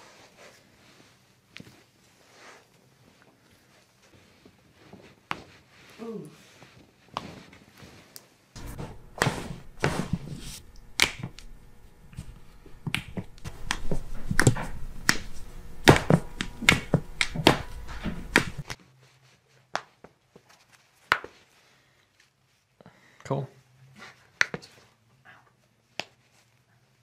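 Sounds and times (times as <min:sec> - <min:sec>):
hand-handling noise: 0:08.6 - 0:18.8.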